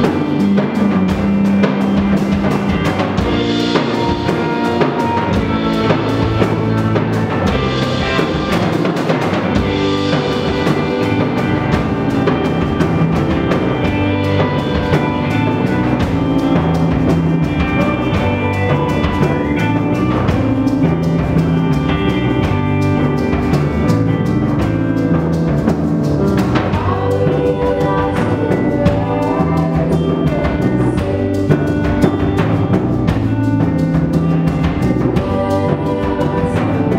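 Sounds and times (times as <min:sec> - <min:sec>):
live band playing: 0:00.0 - 0:36.9
trumpet: 0:03.7 - 0:11.9.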